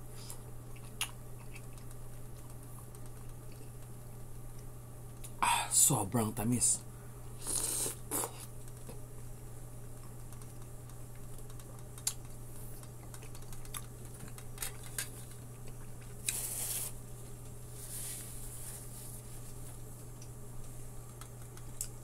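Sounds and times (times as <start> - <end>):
steady low hum: 0.0 - 22.0
person chewing melon: 0.2 - 3.9, 7.4 - 9.0, 10.0 - 17.0
paper tissue rustling: 16.3 - 17.0, 17.7 - 19.8.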